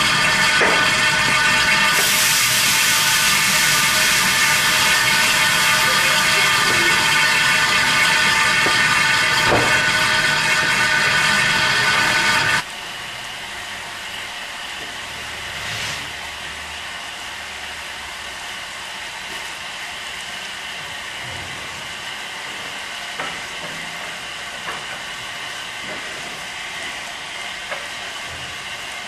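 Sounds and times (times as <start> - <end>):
steam hissing: 0.0 - 12.7.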